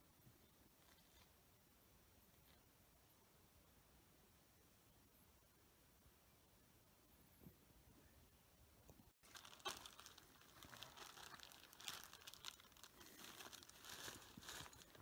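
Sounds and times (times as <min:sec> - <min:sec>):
clothing rustling and crinkling: 0:09.2 - 0:15.0.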